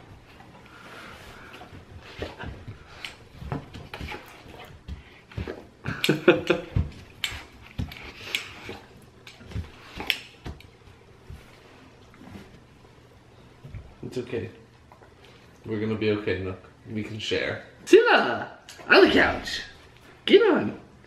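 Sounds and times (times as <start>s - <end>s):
dog paws thumping: 0.0s - 12.7s.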